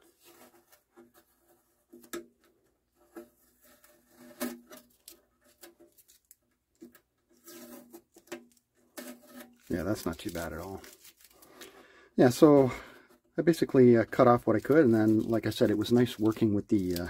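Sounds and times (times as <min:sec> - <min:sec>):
tape peeling off plastic: 0:03.2 - 0:11.7.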